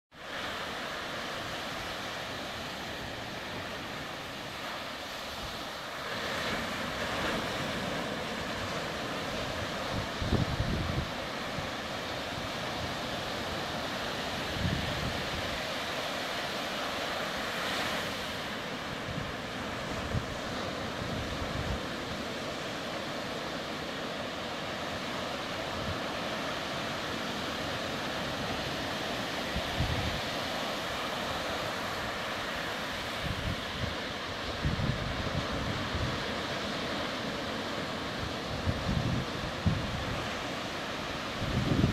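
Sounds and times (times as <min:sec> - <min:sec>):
surf breaking on beach: 0:00.2 - 0:41.9
wind buffeting microphone: 0:07.0 - 0:11.7, 0:28.2 - 0:32.3, 0:32.9 - 0:37.1, 0:37.7 - 0:40.6, 0:41.2 - 0:41.9.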